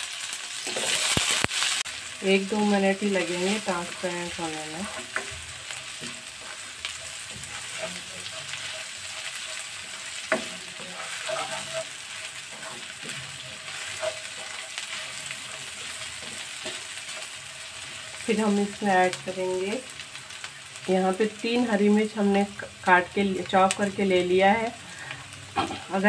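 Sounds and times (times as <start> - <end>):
onions sizzling in oil: 0.0 - 26.0
spatula scraping and tapping pan: 3.2 - 18.2.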